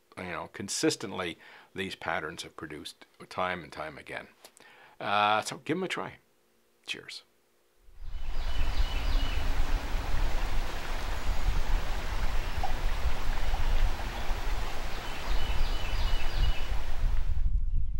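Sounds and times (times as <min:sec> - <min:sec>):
wind buffeting microphone: 0:08.0 - 0:17.9
river water flowing: 0:08.1 - 0:17.2.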